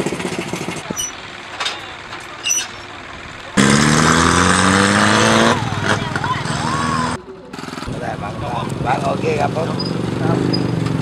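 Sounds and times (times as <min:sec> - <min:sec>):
small motorcycle engine idling: 0:00.0 - 0:03.7, 0:05.5 - 0:11.0
motorcycle accelerating: 0:00.0 - 0:11.0.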